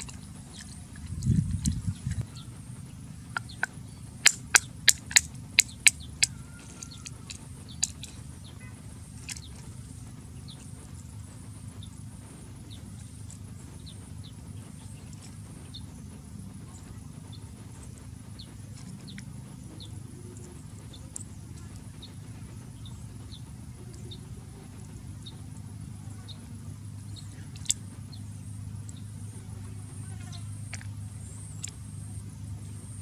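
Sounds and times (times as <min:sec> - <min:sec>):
wooden stick tapping shells: 0:03.4 - 0:08.1.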